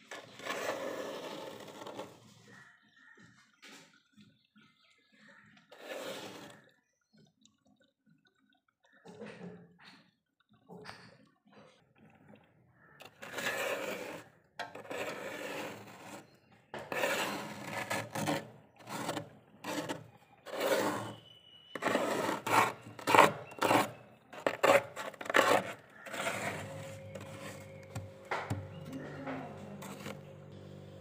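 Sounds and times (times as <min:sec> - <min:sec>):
plastic scraper scraping frost: 0:00.0 - 0:02.2, 0:05.7 - 0:06.6, 0:13.1 - 0:30.4.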